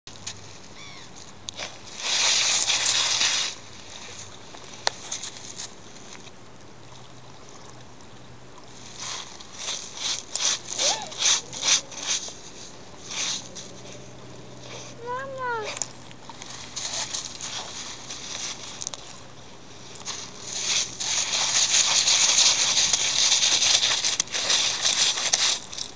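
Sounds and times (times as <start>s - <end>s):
pebbles scraping and rattling: 1.6s - 5.8s, 8.7s - 14.0s, 15.8s - 25.9s
dog sniffing: 9.0s - 15.9s.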